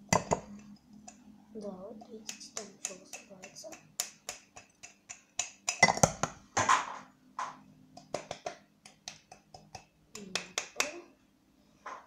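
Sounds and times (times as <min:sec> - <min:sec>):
sugar tapping on glass: 0:00.1 - 0:01.2, 0:02.3 - 0:06.3, 0:08.0 - 0:10.8.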